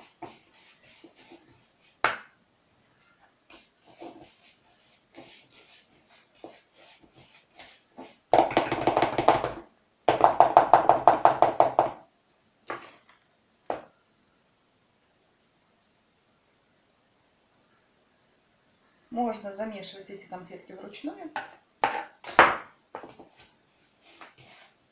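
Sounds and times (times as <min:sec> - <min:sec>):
fast stirring strokes in plastic bowl: 0:00.0 - 0:02.0, 0:03.5 - 0:09.2, 0:23.3 - 0:24.9.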